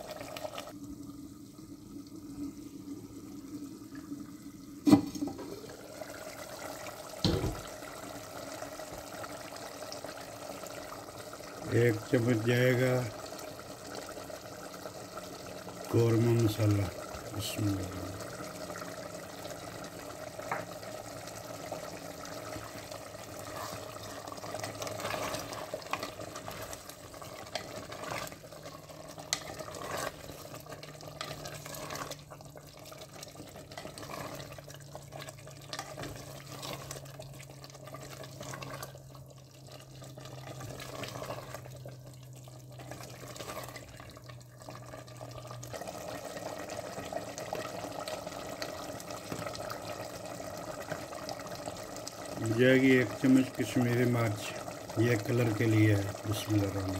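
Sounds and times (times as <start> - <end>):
sauce bubbling in pot: 0.0 - 56.9
spoon stirring: 23.3 - 32.4, 33.1 - 34.7.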